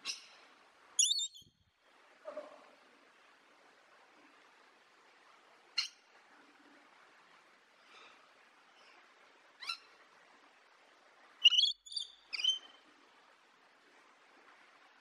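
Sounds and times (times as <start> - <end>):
lorikeet shrill calls: 1.0 - 1.4, 11.4 - 12.7.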